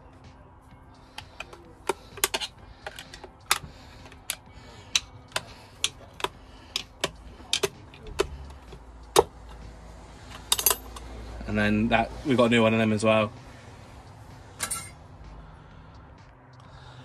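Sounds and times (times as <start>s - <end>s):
tool clicking on metal: 1.2s - 9.3s.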